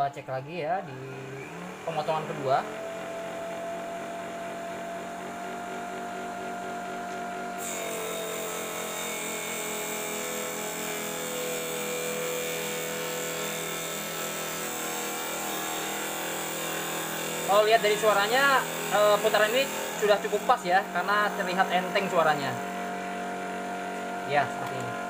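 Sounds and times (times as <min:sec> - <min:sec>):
table saw whine: 0:00.0 - 0:25.0.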